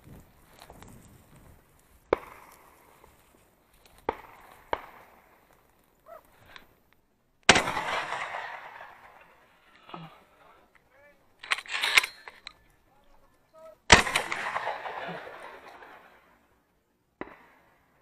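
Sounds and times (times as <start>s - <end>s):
distant shotgun shots: 2.1s - 2.6s, 4.0s - 5.5s, 7.5s - 10.4s, 13.8s - 16.5s, 17.2s - 18.0s
loud close shotgun shot echoing: 7.5s - 10.2s, 13.8s - 16.4s.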